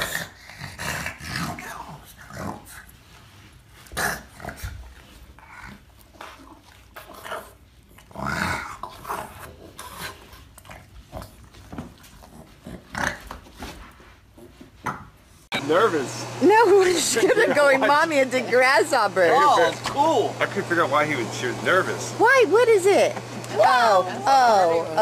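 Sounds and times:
dog grumbling and growling: 0.0 - 2.8, 3.9 - 11.4.

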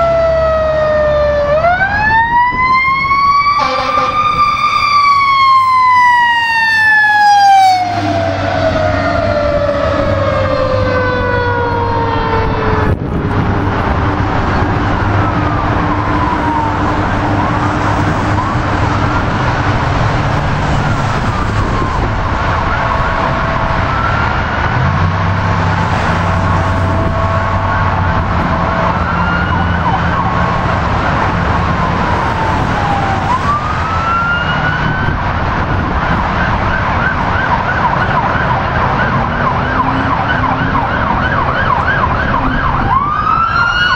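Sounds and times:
electronic sirens wailing: 0.0 - 43.9
road traffic noise: 0.0 - 43.9
siren falling in pitch: 0.0 - 43.9
steady horn tones: 3.0 - 5.0, 21.2 - 31.0.

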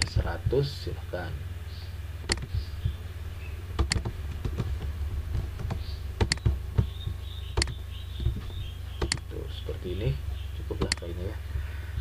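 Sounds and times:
steady low hum: 0.0 - 12.0
keyboard key taps: 5.6 - 6.9
mouse clicks: 6.2 - 6.9, 7.6 - 8.4, 9.0 - 9.2.

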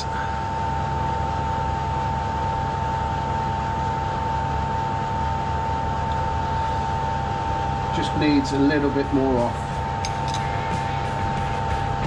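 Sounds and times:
high steady machine whine: 0.0 - 12.0
machinery low rumble: 5.8 - 12.0.

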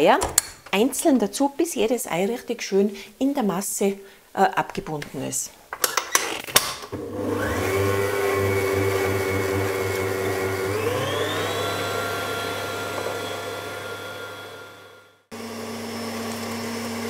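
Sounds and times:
stand mixer motor whining: 6.9 - 17.0.

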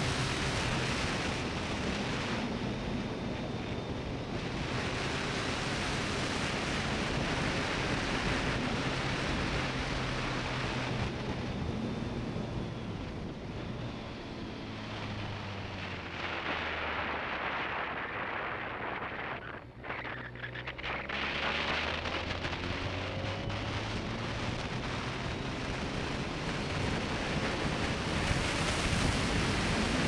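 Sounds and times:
wind rush on microphone: 0.0 - 30.0.

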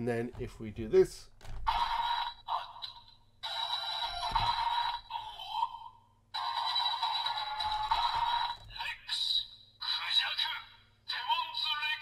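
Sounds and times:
toy electronic sound effects and music: 1.7 - 9.1.

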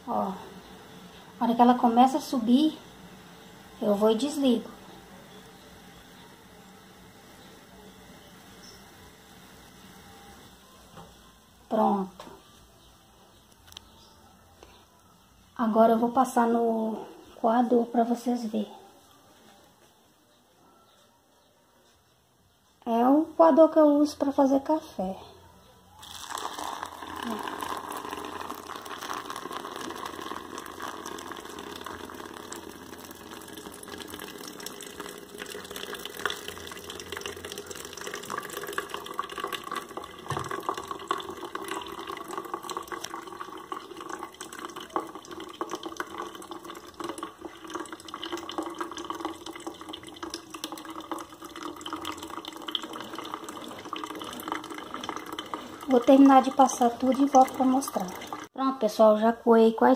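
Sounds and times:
tea pouring and trickling: 26.0 - 58.5.

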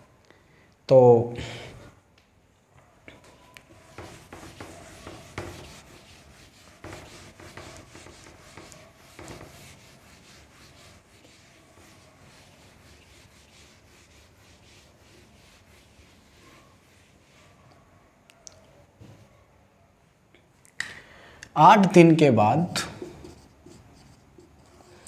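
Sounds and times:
eraser rubbing on whiteboard: 3.6 - 17.8, 23.0 - 25.0.

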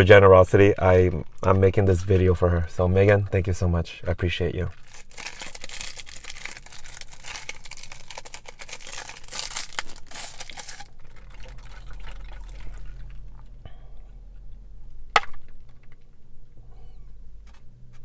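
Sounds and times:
plastic wrapper tearing: 4.7 - 12.8.

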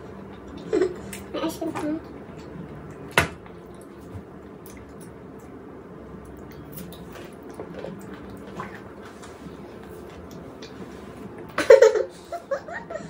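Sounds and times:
low steady background noise: 0.0 - 13.0
wet chewing sounds: 2.4 - 5.6, 6.2 - 10.9.

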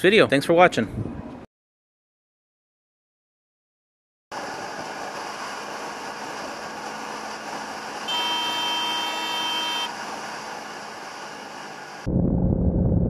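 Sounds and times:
wind and road noise: 0.0 - 1.5, 4.3 - 13.0
motorcycle air horn blast: 8.1 - 9.9.

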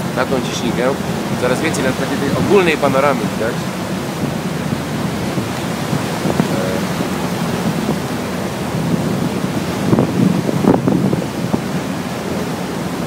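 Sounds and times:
water rushing along ferry: 0.0 - 13.0
wind on microphone: 0.0 - 13.0.

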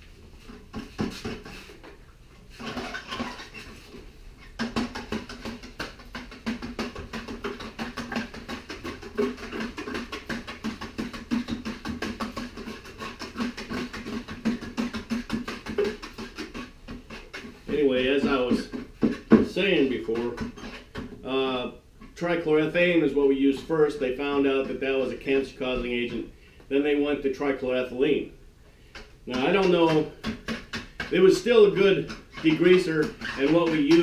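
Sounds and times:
wire rope scrubbing: 5.6 - 20.9, 29.3 - 34.0.

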